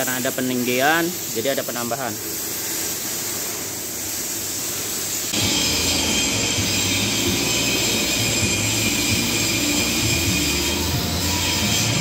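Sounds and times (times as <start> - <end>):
steady hiss: 0.0 - 12.0
machine humming and whining: 5.4 - 12.0.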